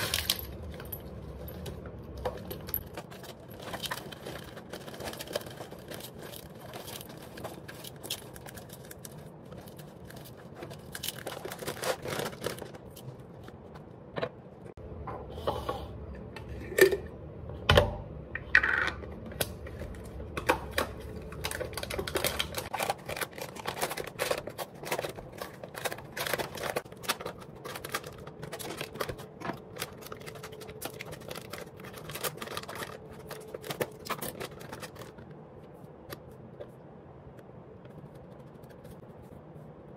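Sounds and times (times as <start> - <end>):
plastic packaging crinkling: 0.0 - 13.8, 19.6 - 35.7.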